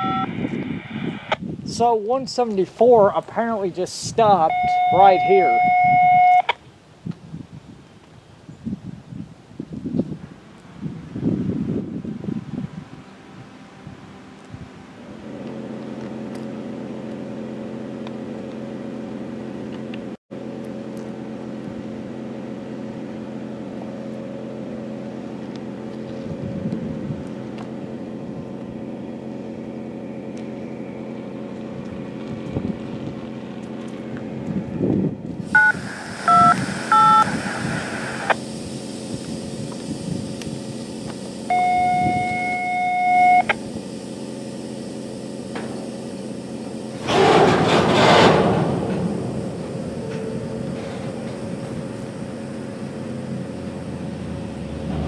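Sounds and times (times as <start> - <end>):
touch-tone beeps: 0.0 - 0.3, 4.5 - 6.5, 35.6 - 37.3, 41.5 - 43.5
diesel locomotives idling: 1.7 - 6.5, 12.0 - 55.0
hiss: 35.4 - 41.5
steady tone: 35.4 - 43.8.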